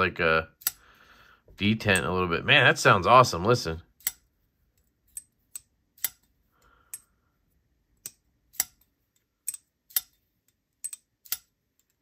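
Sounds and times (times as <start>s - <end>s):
folding knife clicking open and shut: 4.0s - 4.2s, 5.1s - 6.3s, 8.0s - 8.8s, 10.8s - 12.0s.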